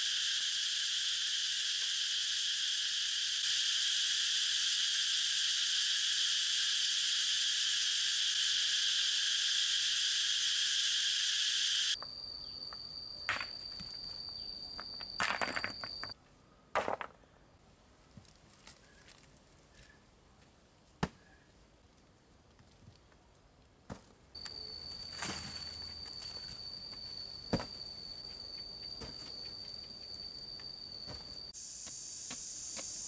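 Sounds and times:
forest insects buzzing: 0.0 - 16.2, 24.4 - 33.0
thin high steady tone: 0.0 - 16.2
stones knocking: 13.3 - 14.0, 14.8 - 16.1, 16.8 - 17.2.

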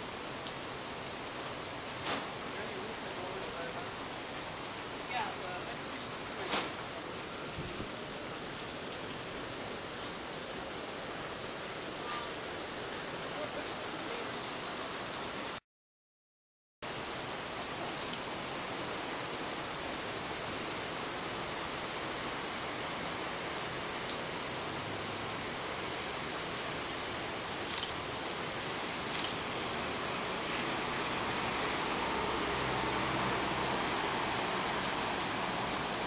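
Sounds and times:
heavy rain on pavement: 0.0 - 15.6, 16.8 - 36.0
faint bus engine: 29.6 - 36.0.

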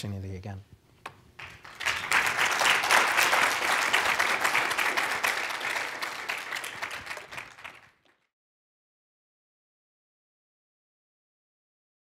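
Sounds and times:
audience applauding: 1.4 - 8.3.

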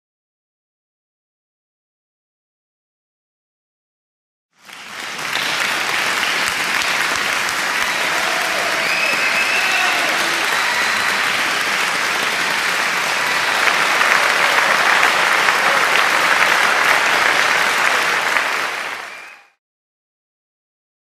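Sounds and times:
crowd applauding: 4.6 - 19.6.

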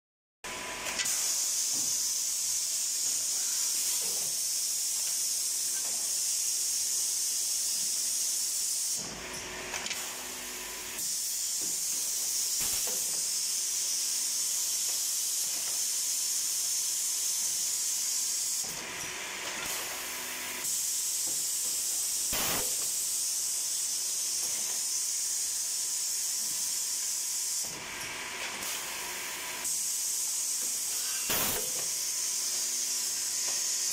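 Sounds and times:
woodworking machine hissing: 0.5 - 33.9.

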